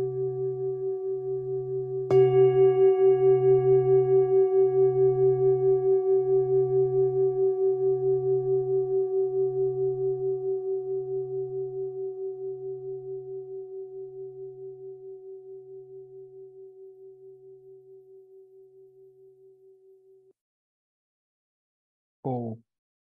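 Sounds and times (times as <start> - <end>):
singing bowl ringing: 0.0 - 19.9.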